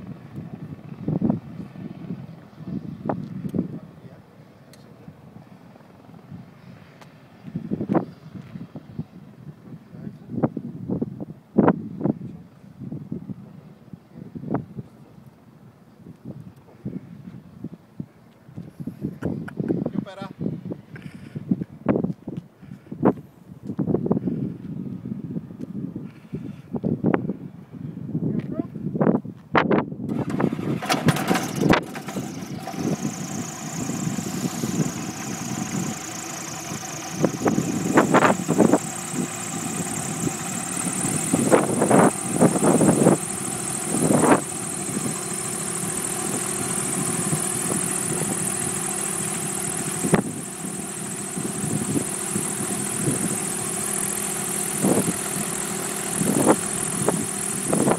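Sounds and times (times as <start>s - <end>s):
aircraft engine idling: 0.0s - 10.2s, 30.1s - 57.9s
wind gusts: 0.0s - 57.9s
high whine: 30.3s - 57.9s.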